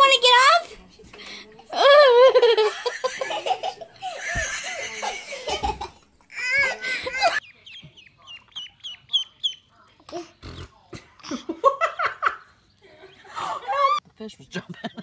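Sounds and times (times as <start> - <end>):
people laughing: 1.8 - 7.4, 11.2 - 14.0
ducklings peeping: 7.4 - 9.9.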